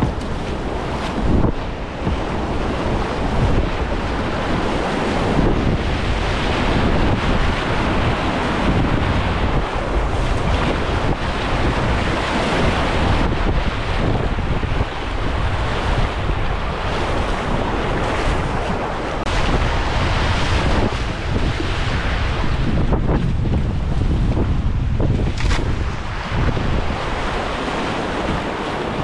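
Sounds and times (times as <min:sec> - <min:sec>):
waves splashing over boat: 0:00.0 - 0:29.0
wind buffeting microphone: 0:00.0 - 0:29.0
rushing whitewater: 0:25.6 - 0:29.0.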